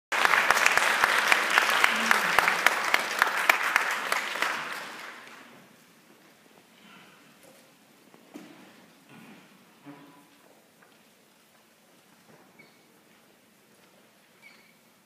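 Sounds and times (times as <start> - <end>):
audience applauding: 0.1 - 5.6.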